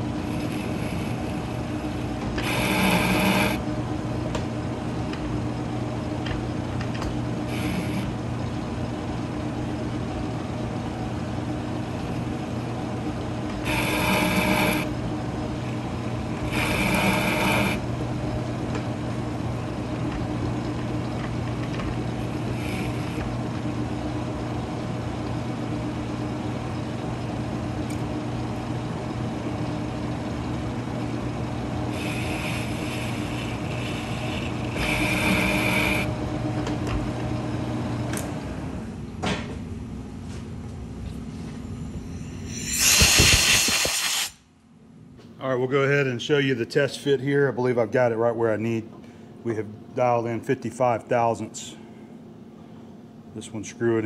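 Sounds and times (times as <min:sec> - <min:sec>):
lathe tool cutting thread: 0:00.0 - 0:03.6, 0:07.4 - 0:08.1, 0:13.6 - 0:15.0, 0:15.7 - 0:18.0, 0:22.1 - 0:23.4, 0:31.8 - 0:36.3, 0:42.3 - 0:44.3
metal lathe running: 0:00.0 - 0:06.2, 0:07.2 - 0:27.2, 0:28.3 - 0:38.0.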